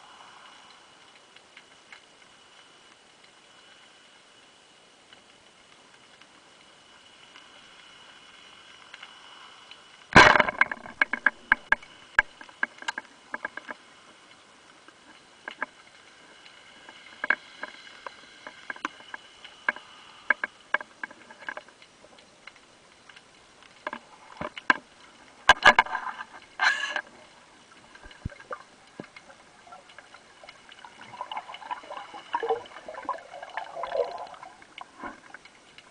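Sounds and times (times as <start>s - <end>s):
rustling and bubbling underwater: 0.0s - 35.9s
spear shaft clicks and knocks: 10.2s - 13.8s, 25.5s - 26.3s.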